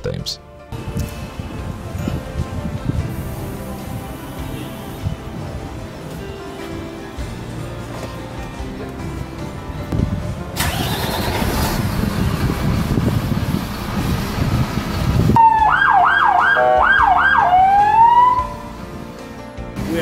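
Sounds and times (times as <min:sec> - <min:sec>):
loud low rumbling: 0:09.8 - 0:15.4
fire truck siren wailing: 0:14.5 - 0:18.7.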